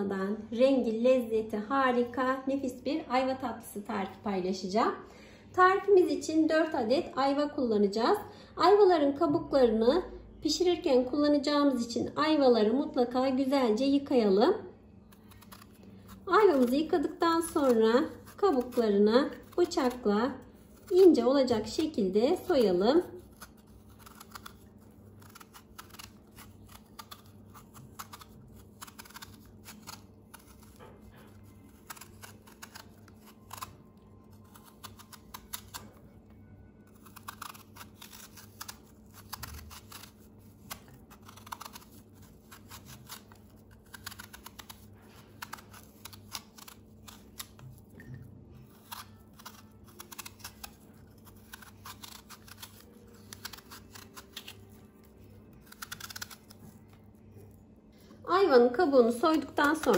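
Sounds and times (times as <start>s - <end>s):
knife peeling fruit skin: 15.0s - 57.6s, 58.8s - 59.9s.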